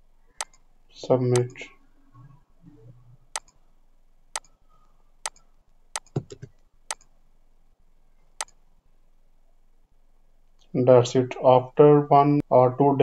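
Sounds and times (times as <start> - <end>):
computer mouse clicking: 0.4 - 0.6, 1.3 - 1.6, 3.3 - 3.6, 4.3 - 4.6, 5.2 - 7.1, 8.4 - 8.6.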